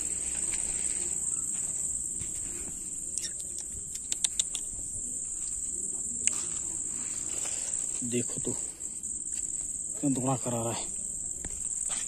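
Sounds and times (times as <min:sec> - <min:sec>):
crickets chirping: 0:00.0 - 0:12.0
sharp clicks: 0:03.2 - 0:04.7.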